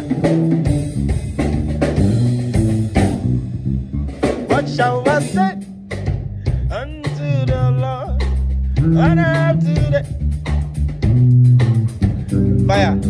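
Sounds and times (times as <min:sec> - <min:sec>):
drum kit playing: 0:00.0 - 0:13.0
electric bass funk line: 0:00.0 - 0:13.0.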